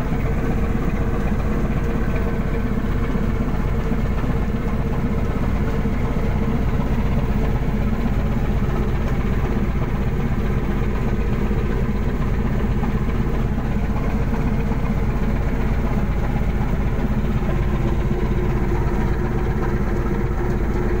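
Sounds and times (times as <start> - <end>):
boat engine running: 0.0 - 21.0.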